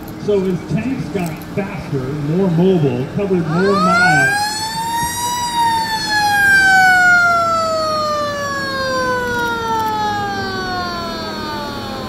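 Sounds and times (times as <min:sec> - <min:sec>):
siren winding down: 0:03.4 - 0:12.0.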